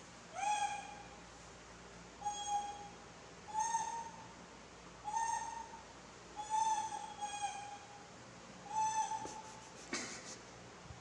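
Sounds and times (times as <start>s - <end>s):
monkeys making coo calls: 8.7s - 10.5s.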